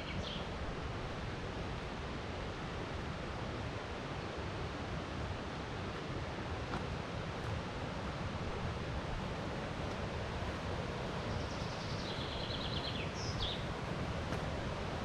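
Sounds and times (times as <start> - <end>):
river rapid rushing: 0.2 - 15.0
songbird trilling: 11.4 - 13.6.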